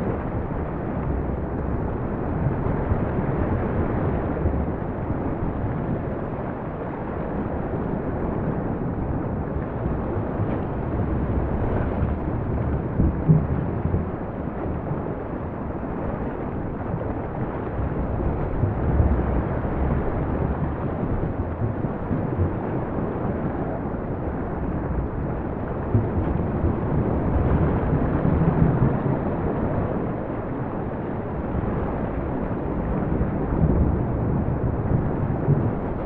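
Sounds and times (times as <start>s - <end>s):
low rumbling: 0.0s - 30.4s, 31.2s - 36.0s.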